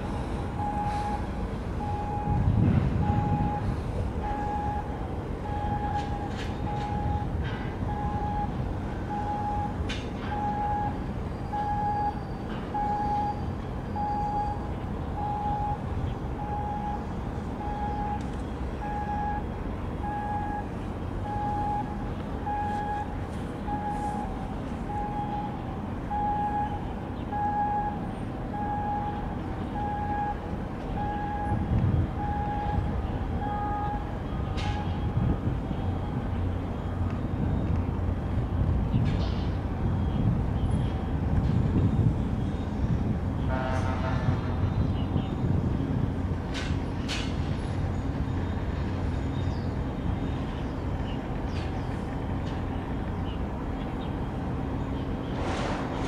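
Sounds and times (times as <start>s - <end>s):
low rumble: 0.0s - 10.9s
ship engines droning: 0.0s - 56.0s
electronic warning beeps: 0.6s - 7.3s, 7.9s - 12.2s, 12.8s - 18.2s, 18.8s - 23.1s, 23.7s - 35.3s.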